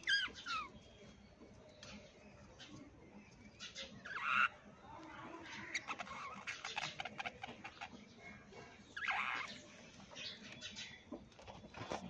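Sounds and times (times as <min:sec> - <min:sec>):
budgerigars chattering: 0:00.0 - 0:00.8, 0:03.6 - 0:11.0.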